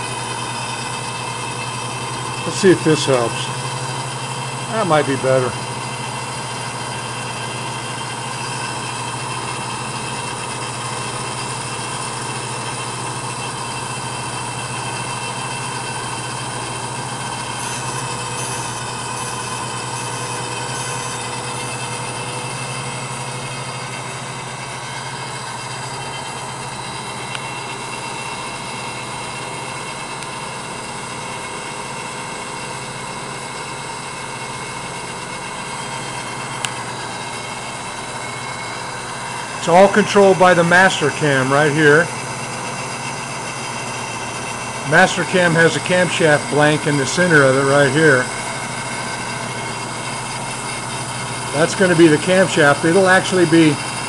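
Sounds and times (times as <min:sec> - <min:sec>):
grinding machine hum and whine: 0:00.0 - 0:54.0.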